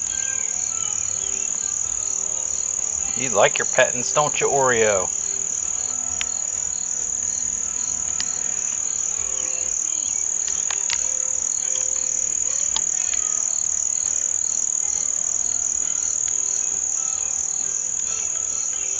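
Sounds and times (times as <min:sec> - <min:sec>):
insects chorus: 0:00.0 - 0:18.9
faint clicks: 0:05.6 - 0:06.7, 0:08.1 - 0:08.9, 0:10.4 - 0:11.2, 0:12.5 - 0:13.3.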